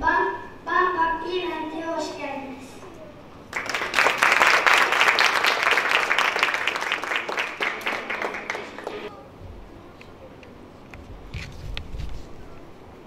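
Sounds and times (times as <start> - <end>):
audience applauding: 3.5 - 9.1.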